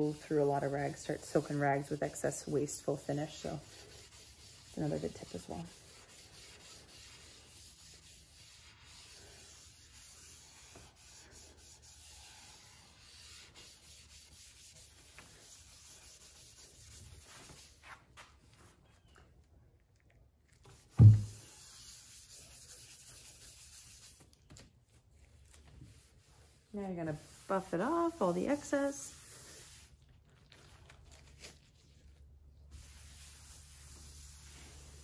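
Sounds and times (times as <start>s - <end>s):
cloth rag scrubbing wood: 0.0s - 18.0s, 20.8s - 24.2s, 25.6s - 30.0s, 32.7s - 35.0s
loud thump: 21.0s - 21.4s.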